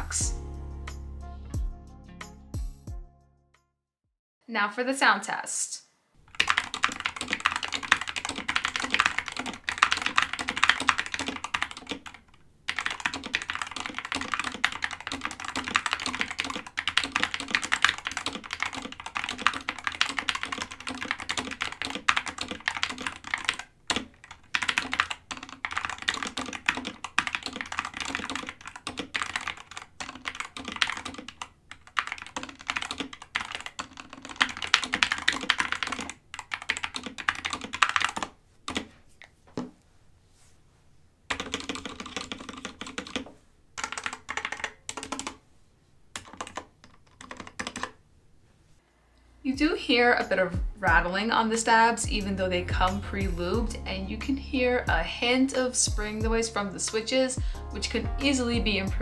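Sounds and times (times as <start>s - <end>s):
mechanical keyboard typing: 6.3s - 38.9s, 41.3s - 45.4s, 46.1s - 48.0s.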